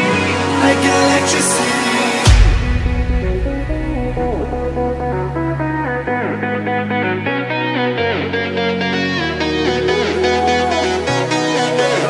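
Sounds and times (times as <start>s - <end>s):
electronic music: 0.0s - 12.0s
loud hit: 2.2s - 5.9s
heavy deep bass: 2.2s - 6.6s.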